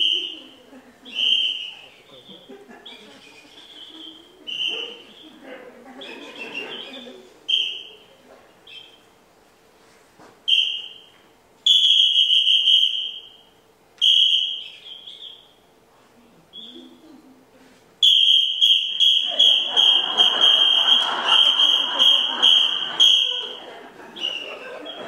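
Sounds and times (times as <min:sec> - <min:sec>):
high-pitched whistle toots: 0:01.1 - 0:01.9, 0:07.5 - 0:08.0, 0:10.5 - 0:15.5, 0:18.0 - 0:23.6.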